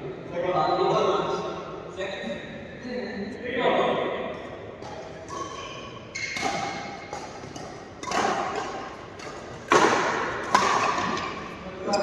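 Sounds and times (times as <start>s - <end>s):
racket hitting shuttlecock: 4.8s - 11.6s.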